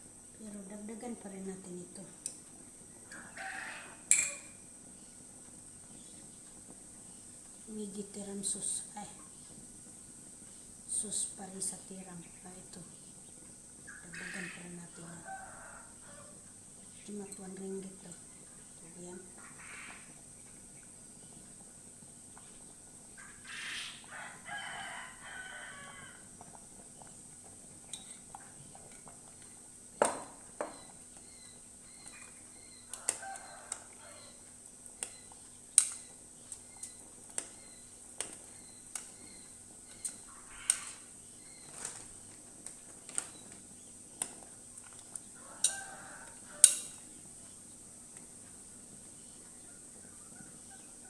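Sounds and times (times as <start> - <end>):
rooster crowing: 3.1 - 4.6, 15.0 - 16.4, 24.0 - 26.3, 32.5 - 34.5, 45.4 - 47.0
metal spoon clinking on pot: 4.1 - 4.5.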